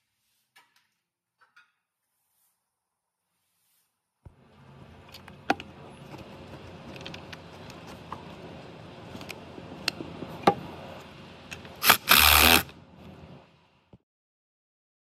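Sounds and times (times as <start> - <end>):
faint steady hum: 4.3 - 14.0.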